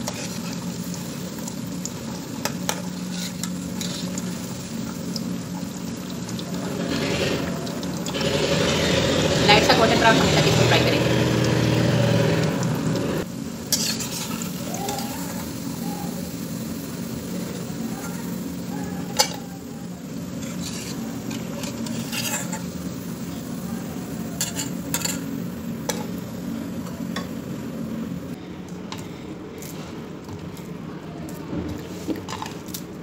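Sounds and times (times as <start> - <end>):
ghee sizzling while deep-frying: 0.0 - 33.0
metal spatula clinking and scraping: 13.7 - 14.6, 20.4 - 22.8, 24.4 - 26.1.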